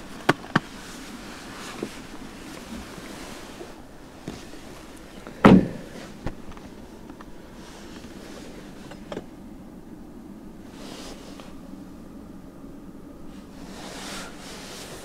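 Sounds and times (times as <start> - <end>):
car door shutting: 5.2 - 7.2.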